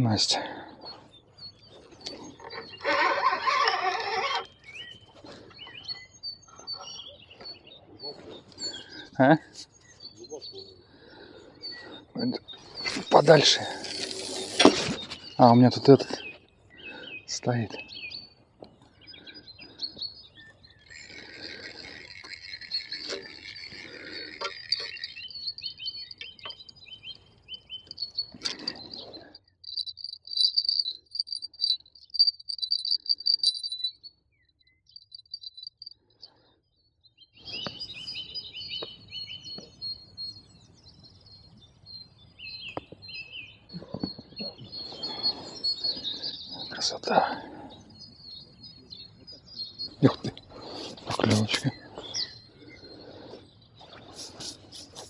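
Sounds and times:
small birds chirping: 0.0s - 55.0s
fast high bird trill: 19.1s - 36.0s.

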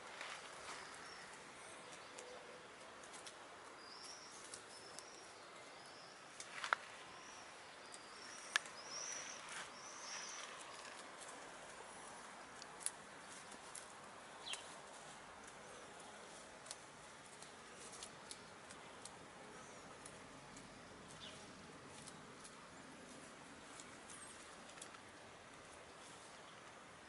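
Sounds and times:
hens rustling in grass: 0.0s - 27.0s
bird chirping: 0.3s - 2.9s, 3.8s - 11.0s, 14.4s - 14.8s, 17.4s - 25.0s.

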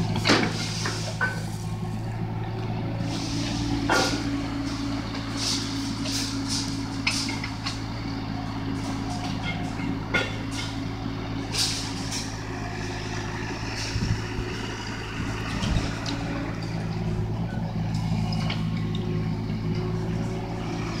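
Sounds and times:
excavator bucket knocks and scrapes: 0.0s - 1.6s, 3.5s - 4.3s
diesel engine running under load: 0.0s - 21.0s.

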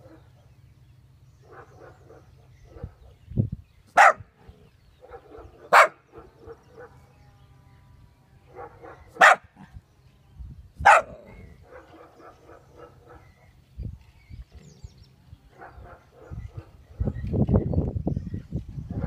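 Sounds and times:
puppy barking: 4.0s - 4.2s, 5.0s - 7.0s, 8.5s - 9.7s, 10.8s - 13.3s.

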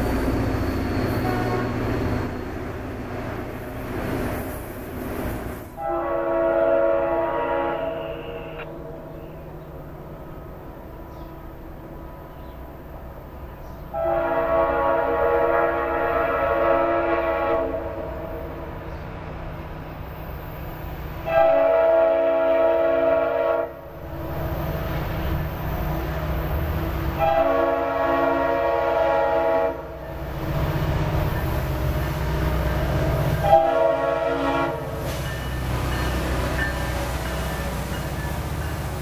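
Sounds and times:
locomotive air horn blasts: 1.2s - 1.8s, 5.8s - 9.0s, 13.9s - 18.5s, 21.2s - 24.0s, 27.1s - 31.1s, 32.3s - 35.8s.

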